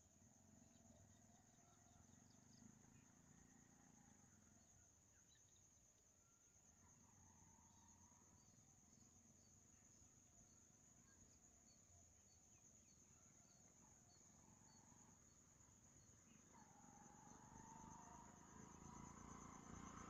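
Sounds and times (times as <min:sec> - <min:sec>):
insects chirring: 0:07.8 - 0:20.0.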